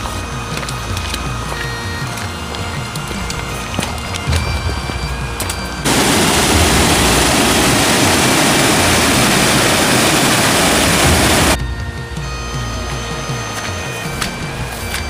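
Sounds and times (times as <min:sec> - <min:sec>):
background music: 0:00.0 - 0:15.0
waterfall roaring: 0:05.8 - 0:11.6.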